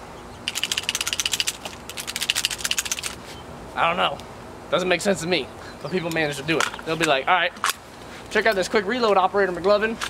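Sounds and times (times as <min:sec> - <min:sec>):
rapid ratchet-like clicking: 0:00.5 - 0:03.2.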